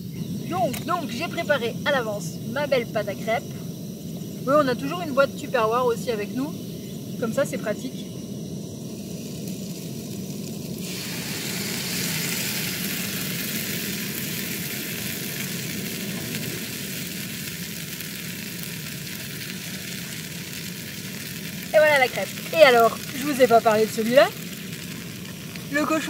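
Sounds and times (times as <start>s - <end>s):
batter sizzling in a frying pan: 0.0s - 26.0s
gas stove burner rushing: 8.1s - 26.0s.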